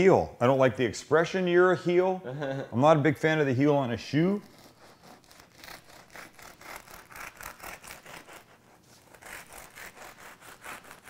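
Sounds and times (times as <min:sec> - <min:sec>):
knife sawing through bread crust: 0:04.3 - 0:11.0.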